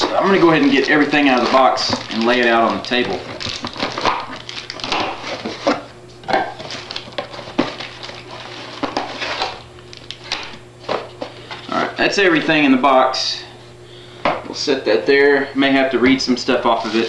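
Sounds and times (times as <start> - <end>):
cardboard and plastic packaging rustling: 0.0 - 11.8, 16.1 - 17.0.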